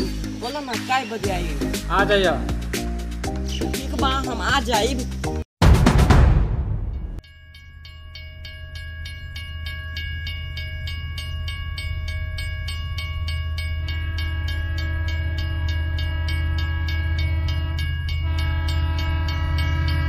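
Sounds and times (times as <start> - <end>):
passenger train rumbling: 11.0 - 20.0.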